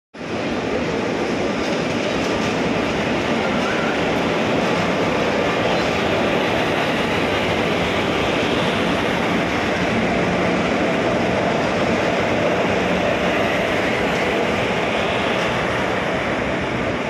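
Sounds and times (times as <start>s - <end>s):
train wheels rumbling on rail: 0.2s - 17.0s.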